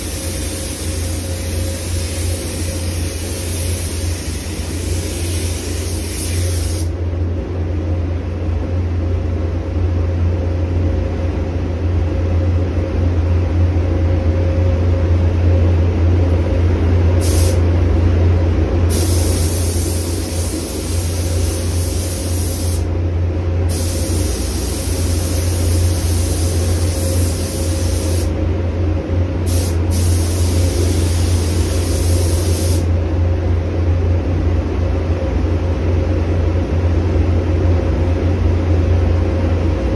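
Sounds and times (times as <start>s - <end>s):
spray gun hissing: 0.0s - 6.9s, 17.2s - 17.6s, 18.9s - 22.9s, 23.7s - 28.3s, 29.4s - 32.9s
low hum of air handling: 0.0s - 39.9s.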